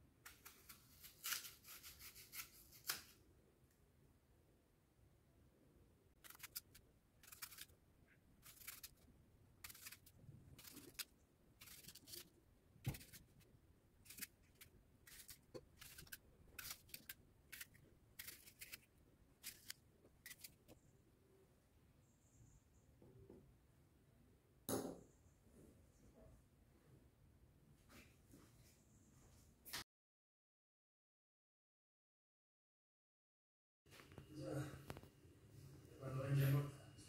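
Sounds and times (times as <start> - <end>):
knife slicing crisp apple: 0.3 - 3.2, 6.2 - 7.7, 8.4 - 9.0, 9.6 - 13.4, 14.0 - 20.6.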